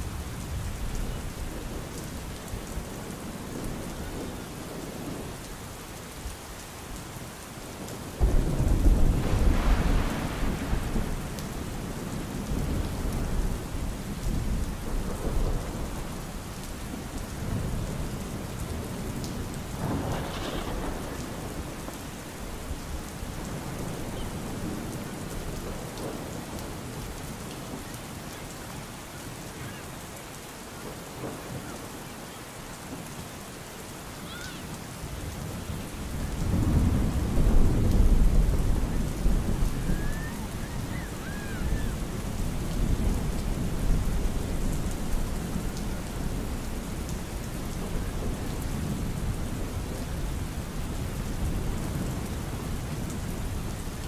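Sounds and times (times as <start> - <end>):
steady rain: 0.0 - 54.0
thunder rumbling: 8.2 - 27.8, 35.1 - 54.0.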